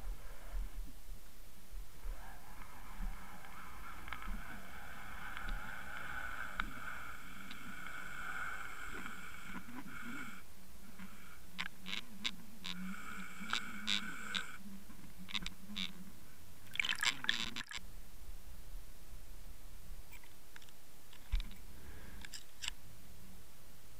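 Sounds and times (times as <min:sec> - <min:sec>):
underwater whine: 0:02.0 - 0:14.7
watery hiss: 0:03.1 - 0:10.4.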